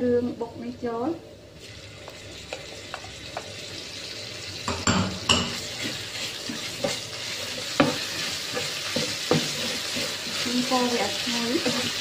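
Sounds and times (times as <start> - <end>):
garlic sizzling in hot oil: 0.6 - 12.0
spatula clinking bowl and pan: 4.7 - 12.0.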